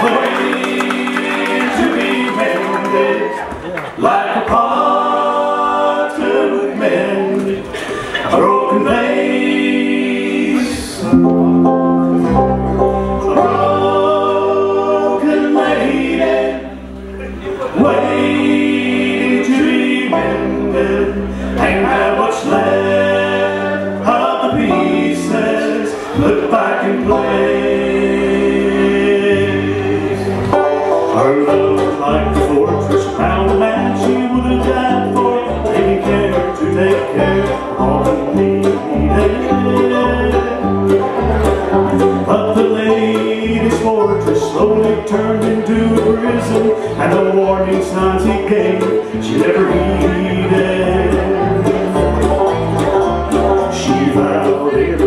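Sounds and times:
bluegrass band playing: 0.0s - 55.0s
fast banjo picking: 0.0s - 55.0s
harmony singing: 0.0s - 55.0s.

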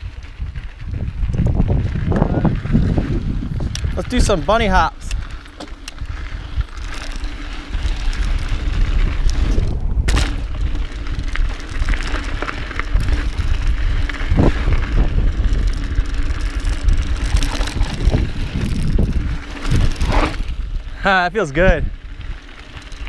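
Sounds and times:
bike rattling: 0.0s - 23.0s
bike tyres rumbling on dirt: 0.0s - 23.0s
wind on microphone: 0.0s - 23.0s.

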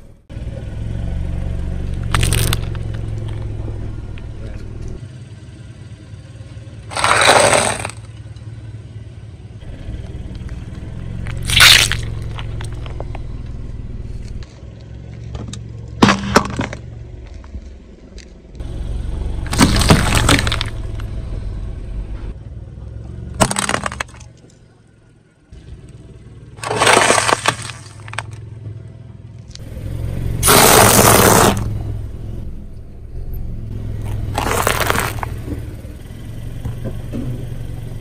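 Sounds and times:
car engine low hum: 0.0s - 38.0s
tyre crushing objects: 6.9s - 8.1s, 15.4s - 17.6s, 19.5s - 20.8s, 23.4s - 24.3s, 26.6s - 28.4s, 30.4s - 31.7s, 34.0s - 35.6s.

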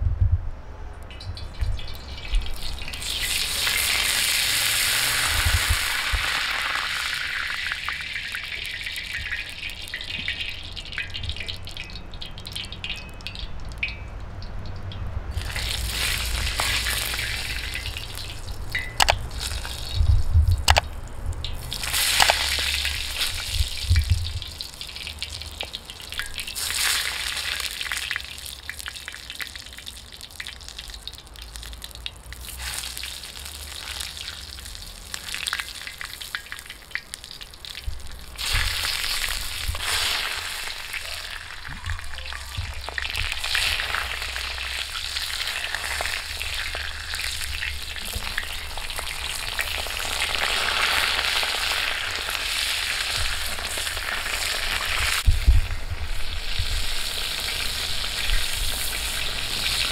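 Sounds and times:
eggplants sizzling in hot oil: 1.1s - 59.9s.

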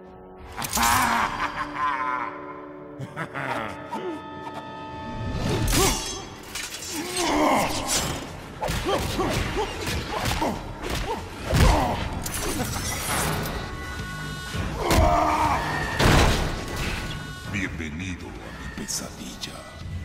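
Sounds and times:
dramatic orchestral score: 0.0s - 20.0s
shouts and grunts: 14.8s - 16.0s.

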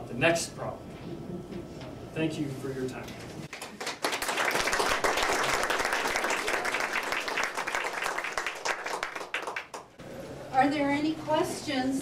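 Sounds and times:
audience applauding: 3.5s - 10.0s.

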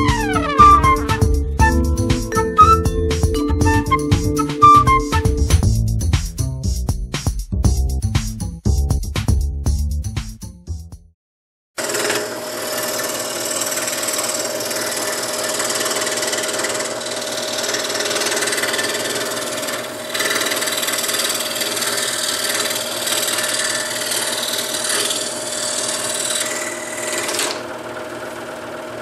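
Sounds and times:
saw blade rasping through wood: 11.8s - 28.4s
scroll saw running: 11.8s - 29.0s.

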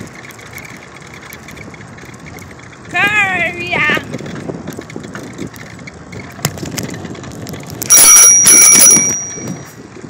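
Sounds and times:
wind and road noise: 0.0s - 10.0s
bicycle bell ringing: 7.8s - 9.9s.

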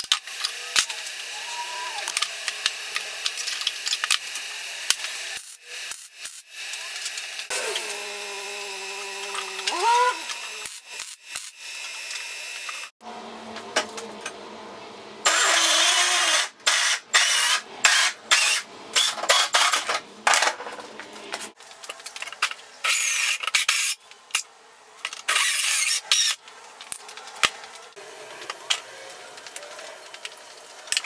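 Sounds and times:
band saw cutting metal: 0.0s - 12.9s.

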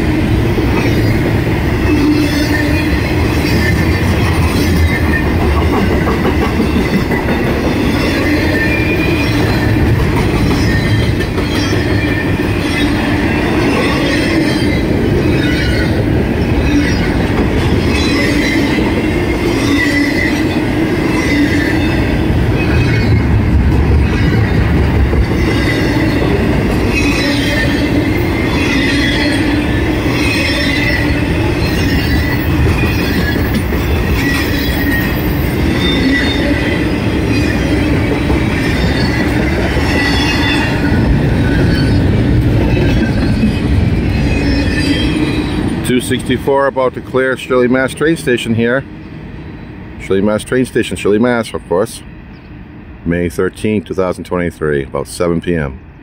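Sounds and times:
freight cars clattering on rails: 0.0s - 46.5s
steel wheel squeal: 0.7s - 1.2s, 1.8s - 9.8s, 10.4s - 23.3s, 25.2s - 45.7s.

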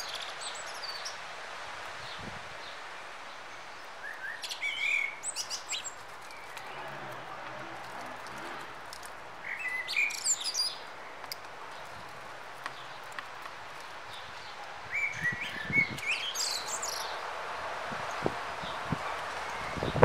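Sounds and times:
faint outdoor hiss: 0.0s - 20.0s
bird warbling song: 3.7s - 8.4s, 9.4s - 12.0s, 14.1s - 17.2s.

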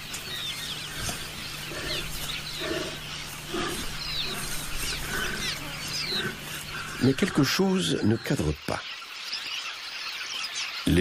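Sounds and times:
steady low hum: 0.0s - 7.7s
birds chirping: 0.0s - 11.0s.

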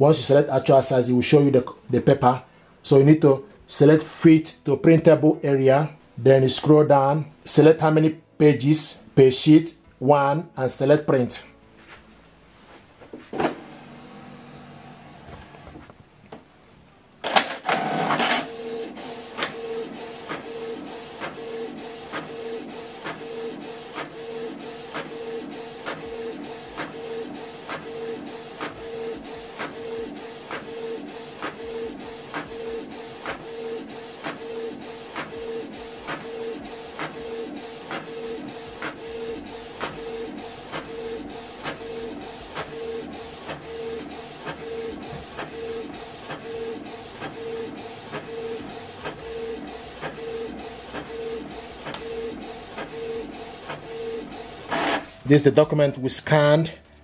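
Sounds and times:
inkjet printer whirring and clicking: 17.3s - 55.2s.

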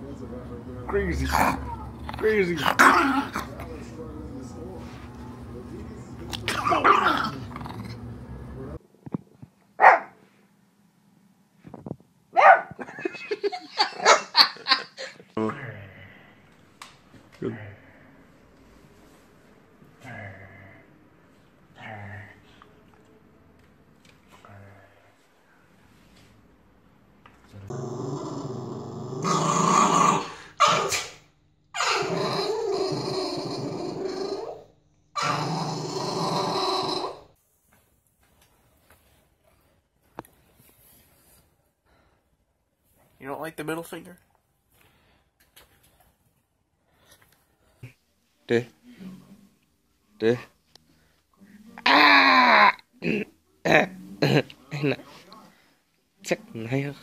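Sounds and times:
dogs growling and snarling: 0.9s - 3.9s, 6.3s - 8.8s, 27.7s - 31.2s, 31.8s - 37.4s
small dog barking: 9.8s - 10.2s, 12.4s - 12.8s, 30.6s - 31.2s.

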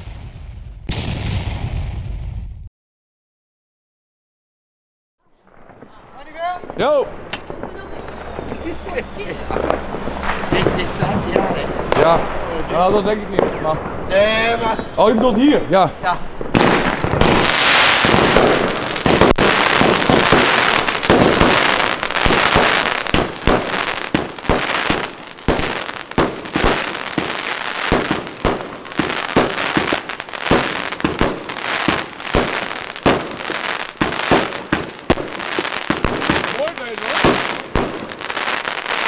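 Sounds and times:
firework shots and bursts: 0.0s - 2.6s, 5.4s - 14.9s, 16.3s - 39.0s
firework hissing launch: 7.0s - 12.6s, 16.4s - 39.0s.

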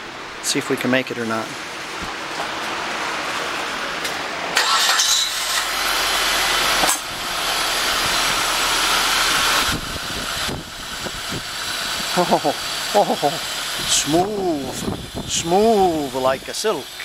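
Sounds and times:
car engine cranking and starting: 4.5s - 17.0s.

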